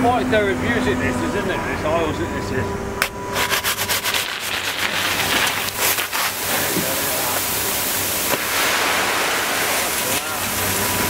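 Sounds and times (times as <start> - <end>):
gravel pouring into truck bed: 3.4 - 11.0.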